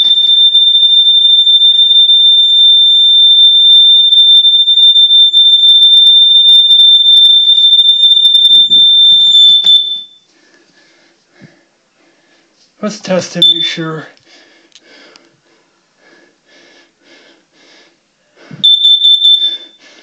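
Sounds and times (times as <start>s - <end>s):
smoke alarm high-pitched tone: 0.0s - 10.3s, 13.4s - 13.9s, 18.6s - 19.9s.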